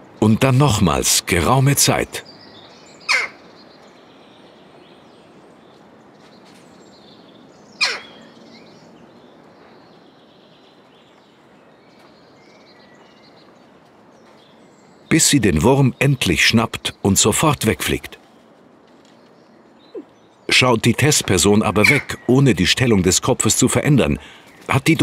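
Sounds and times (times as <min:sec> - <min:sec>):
jackdaw calls: 0:02.3 - 0:03.6, 0:07.7 - 0:08.4, 0:19.8 - 0:25.0.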